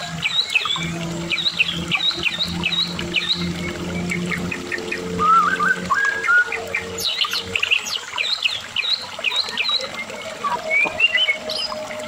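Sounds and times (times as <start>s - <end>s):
low steady hum: 0.0s - 12.0s
bird singing whistled notes: 5.2s - 11.8s.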